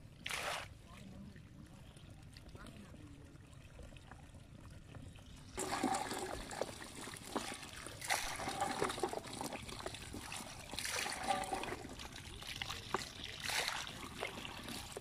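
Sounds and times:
water splashing into basket: 0.2s - 0.7s, 5.6s - 15.0s.

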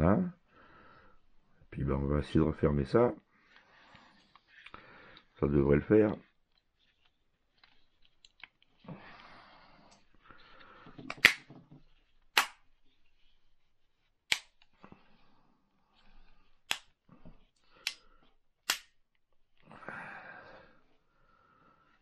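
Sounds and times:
soft handling rustle: 2.4s - 19.7s
plastic casing snapping shut: 11.1s - 11.5s, 18.6s - 19.0s.

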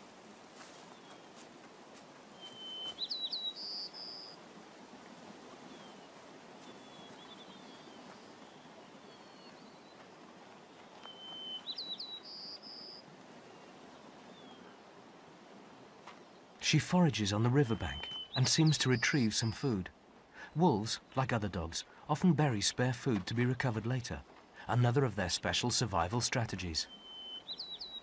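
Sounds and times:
soft outdoor hiss: 0.0s - 28.0s
songbird singing: 0.6s - 1.4s, 2.2s - 4.4s, 5.6s - 14.9s, 15.8s - 28.0s
faint bird chirps: 2.3s - 4.4s, 5.6s - 10.0s, 10.7s - 14.9s, 17.3s - 19.6s, 26.3s - 28.0s.

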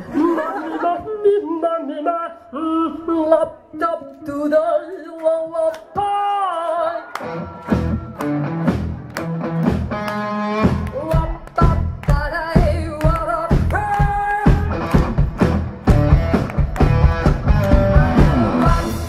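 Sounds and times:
bass: 7.2s - 19.0s
drums: 7.2s - 19.0s.

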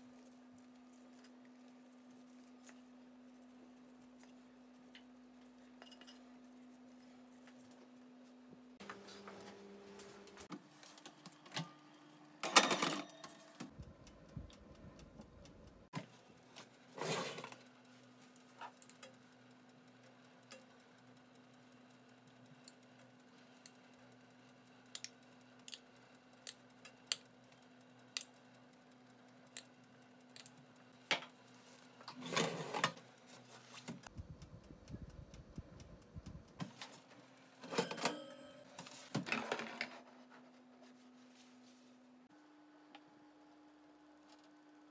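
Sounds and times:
steady low hum: 13.6s - 15.9s, 33.2s - 37.5s
baking tray scraping: 17.0s - 17.6s, 32.1s - 34.0s.

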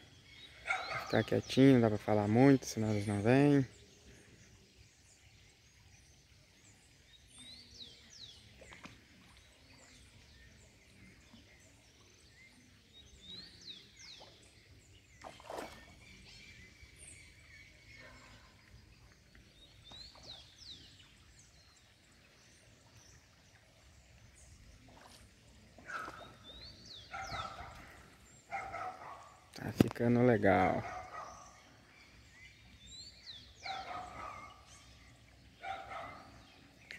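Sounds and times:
faint bird calls: 24.8s - 29.6s.

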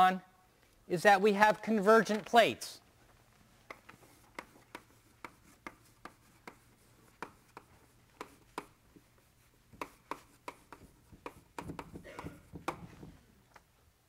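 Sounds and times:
pen drawing strokes and taps: 3.6s - 13.1s.

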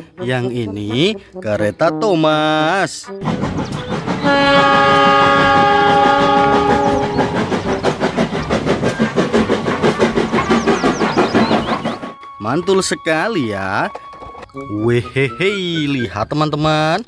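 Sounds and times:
train chuffing and clatter: 3.2s - 14.5s
steam locomotive whistle: 3.8s - 8.0s.

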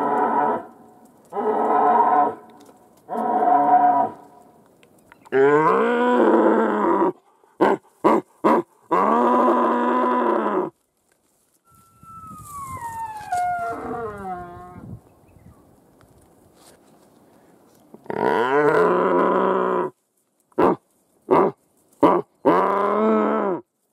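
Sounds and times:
high call gliding downward: 11.7s - 14.8s.

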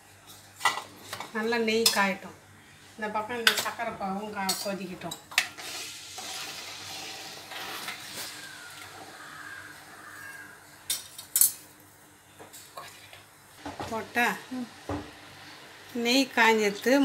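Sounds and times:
metal spoon scraping a pan: 4.4s - 8.4s.

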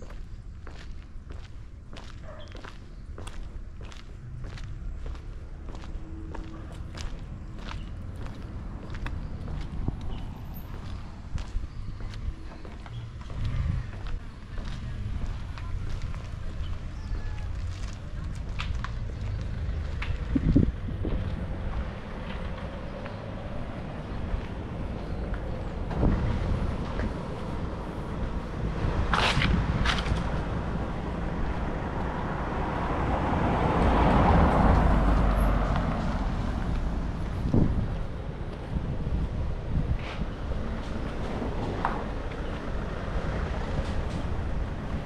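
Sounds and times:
footsteps clicking: 0.0s - 23.2s
vehicle passing by rumbling: 3.9s - 45.0s
wind buffeting microphone: 6.4s - 45.0s.

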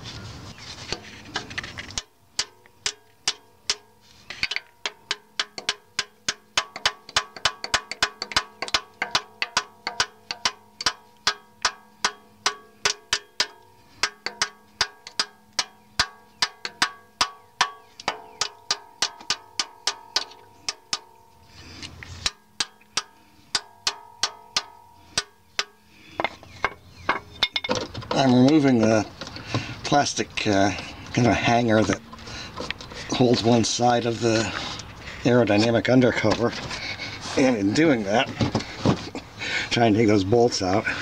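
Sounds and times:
hammer tapping steel: 2.0s - 27.8s.

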